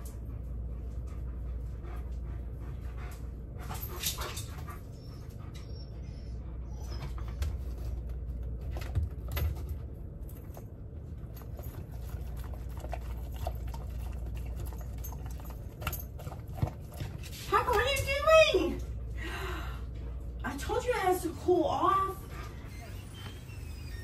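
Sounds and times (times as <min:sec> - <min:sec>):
steady low hum: 0:00.0 - 0:24.0
dog licking and eating: 0:11.2 - 0:17.5.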